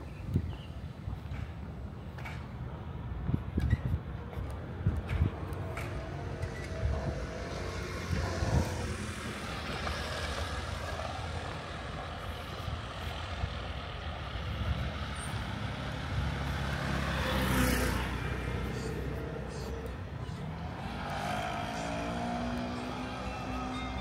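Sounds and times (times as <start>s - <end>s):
street traffic rumble: 0.0s - 24.0s
motor scooter passing: 5.2s - 24.0s.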